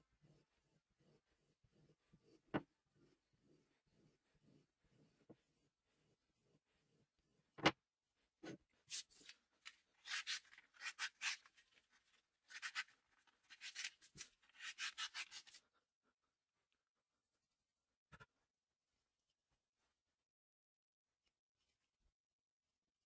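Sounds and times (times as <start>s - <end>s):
blade slicing paper: 8.9s - 11.7s, 12.5s - 15.6s.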